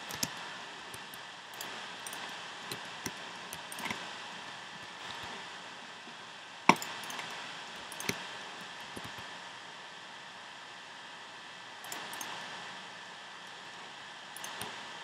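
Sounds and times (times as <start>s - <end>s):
keyboard and mouse clicks: 0.0s - 4.0s, 6.7s - 9.3s, 11.8s - 12.5s, 14.4s - 14.8s
steady hiss: 0.0s - 15.0s.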